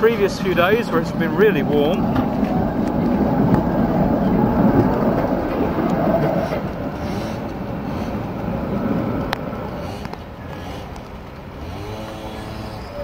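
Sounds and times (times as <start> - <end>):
tram wheels rumbling on rails: 0.0 - 13.0.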